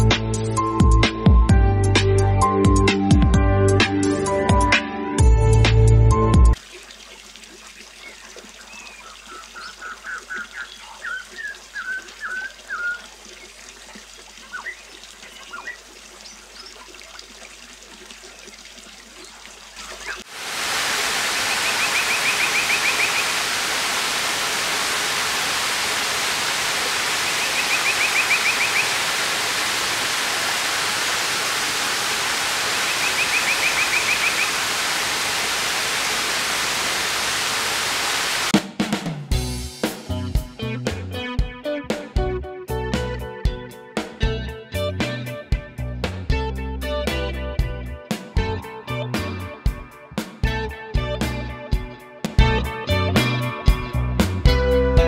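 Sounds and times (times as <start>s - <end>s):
birds chirping faintly: 6.7s - 17.0s, 21.2s - 23.6s, 26.8s - 31.6s, 32.3s - 34.9s
rain on wet pavement: 18.8s - 38.6s.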